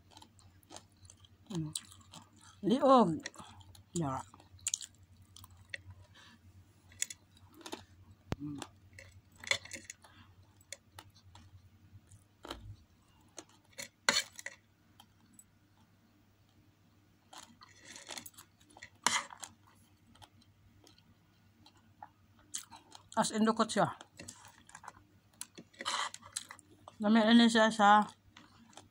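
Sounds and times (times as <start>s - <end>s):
person chewing food: 0.0s - 2.6s, 3.2s - 16.6s, 17.2s - 23.2s, 24.0s - 27.0s, 28.1s - 28.9s.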